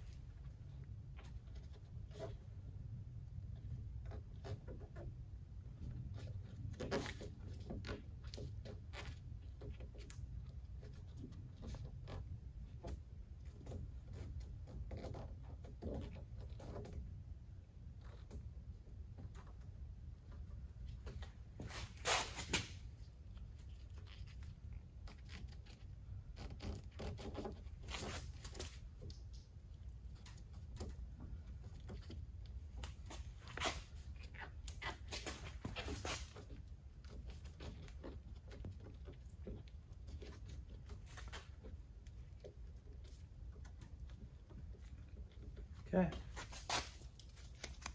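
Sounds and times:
rustling: 17.9 - 47.9
tape tearing: 21.6 - 23.0, 23.6 - 29.4, 32.8 - 36.6, 46.3 - 47.9.

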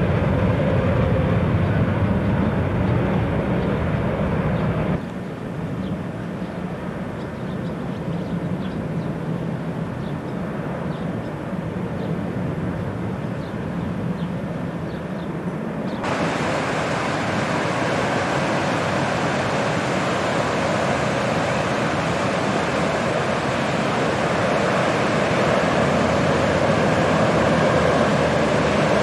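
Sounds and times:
distant jet engine rumble: 0.0 - 29.0
bright steady hiss: 16.0 - 29.0.

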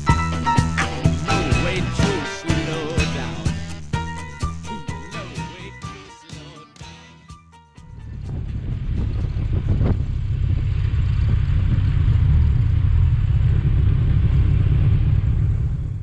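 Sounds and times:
motorcycle engine running: 7.9 - 16.0
wind rumble on microphone: 7.9 - 16.0.

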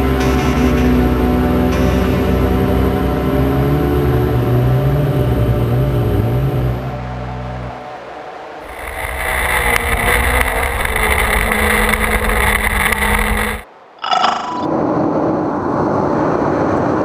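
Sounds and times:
motorcycle engine running: 0.0 - 7.2, 8.6 - 13.6
wind and road noise: 0.0 - 17.0.

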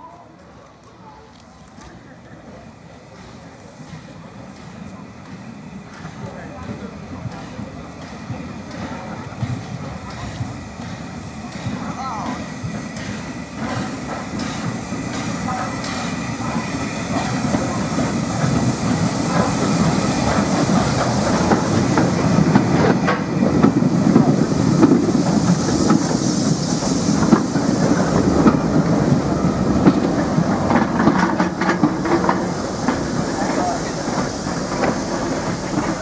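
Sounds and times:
steam train rolling in: 0.0 - 36.0
hiss of steam: 1.6 - 36.0
wheels clacking over rail joints: 5.9 - 36.0.

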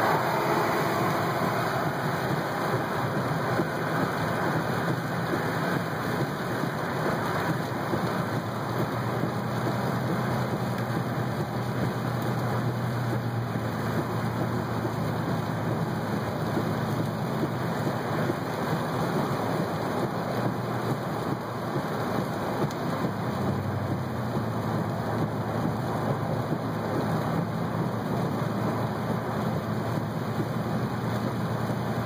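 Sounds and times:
low rumble: 0.0 - 6.4
rain on car roof: 0.0 - 32.0
tyre noise on wet road: 0.0 - 32.0.

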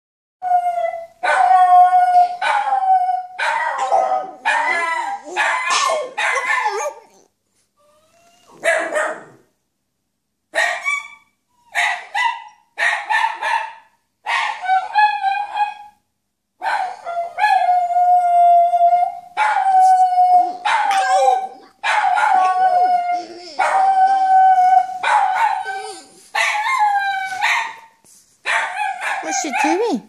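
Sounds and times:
dog howling: 0.4 - 7.2, 16.9 - 27.5.

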